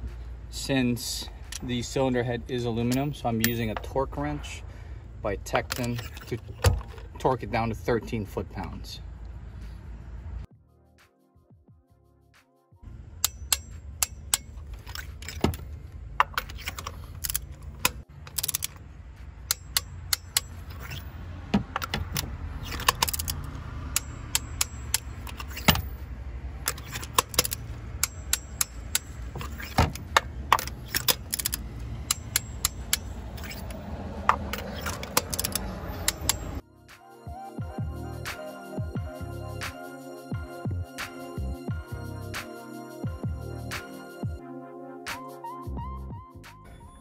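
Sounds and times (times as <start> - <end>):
ratchet wrench clicking: 13.2 - 18.8, 19.4 - 21.1, 21.7 - 26.0, 26.6 - 36.6.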